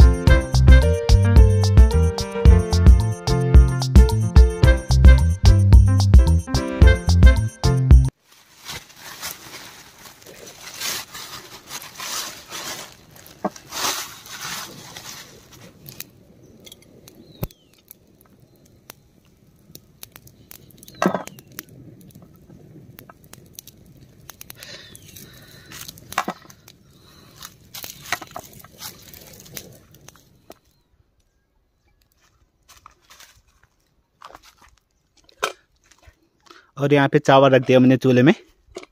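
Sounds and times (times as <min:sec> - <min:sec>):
fire crackling: 0:00.0 - 0:38.9
pots and firewood knocking: 0:20.9 - 0:21.5.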